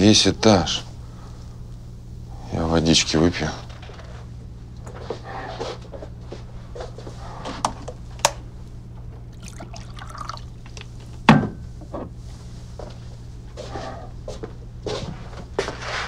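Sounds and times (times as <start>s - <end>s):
water poured into a glass: 9.3s - 10.9s.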